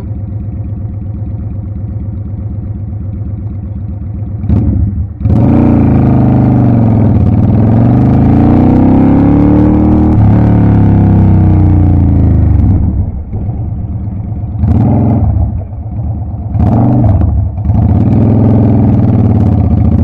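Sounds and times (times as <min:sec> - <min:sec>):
motorcycle engine: 0:00.0 - 0:20.0.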